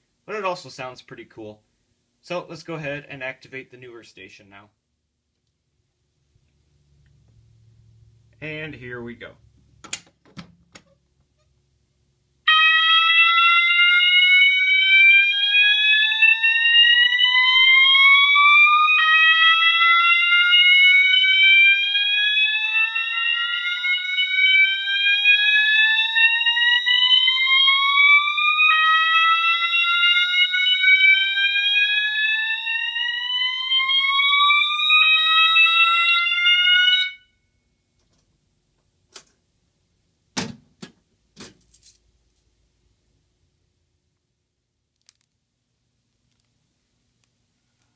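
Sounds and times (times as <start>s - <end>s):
fire alarm slow-whoop tone: 12.5s - 37.5s
steady high alarm tone: 12.5s - 37.5s.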